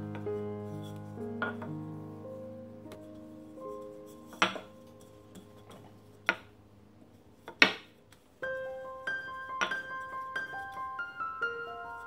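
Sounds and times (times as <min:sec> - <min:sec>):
soft piano music: 0:00.0 - 0:12.0
rolling pin knocking on marble: 0:04.3 - 0:04.7, 0:07.5 - 0:07.9.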